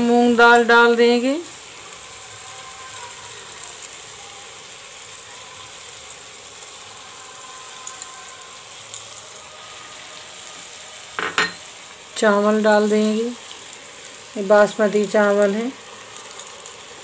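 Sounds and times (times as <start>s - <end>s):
vegetables sizzling in a pot: 0.0s - 17.0s
spoon tapping bowl: 11.2s - 11.6s.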